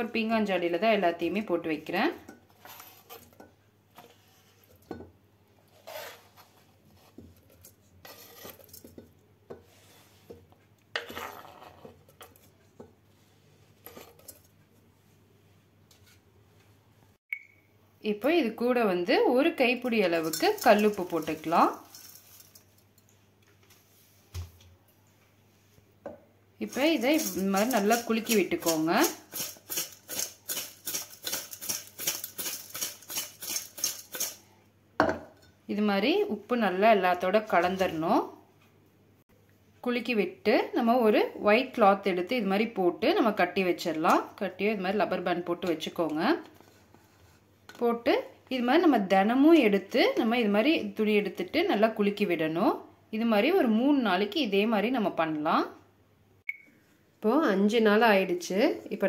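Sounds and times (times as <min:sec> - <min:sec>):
knife scraping cutting board: 0:02.5 - 0:03.4, 0:05.7 - 0:09.0, 0:26.7 - 0:34.4
fruit and salt rattling in jar: 0:20.0 - 0:22.9, 0:26.6 - 0:34.4.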